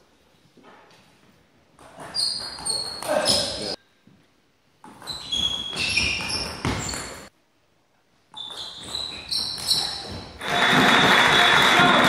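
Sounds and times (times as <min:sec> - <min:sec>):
shoes squeaking on wooden floor: 0:01.8 - 0:03.8, 0:04.8 - 0:07.3, 0:08.3 - 0:10.4.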